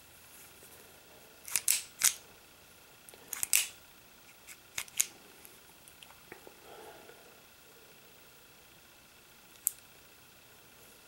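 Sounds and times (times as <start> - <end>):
pistol mechanism clicks: 1.5 - 2.2, 3.3 - 3.8, 4.7 - 5.1.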